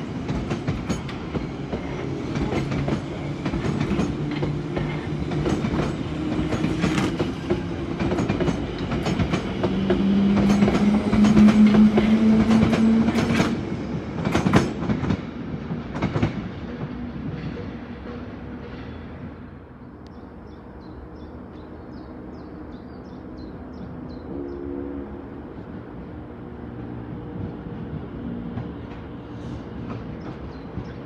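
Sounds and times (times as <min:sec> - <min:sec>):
train traction motors humming: 0:00.0 - 0:31.0
wheels clacking over rail joints: 0:00.1 - 0:19.0.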